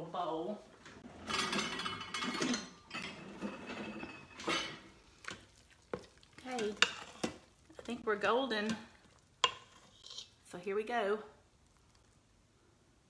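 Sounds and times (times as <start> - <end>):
dishes clinking: 1.0 - 7.5
metal spoon scraping a pot: 6.5 - 7.4, 8.6 - 10.4.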